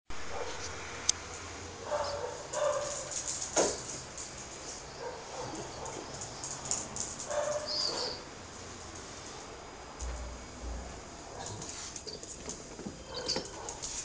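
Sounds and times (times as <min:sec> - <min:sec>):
puppy yipping: 0:07.3 - 0:08.2, 0:13.0 - 0:13.8.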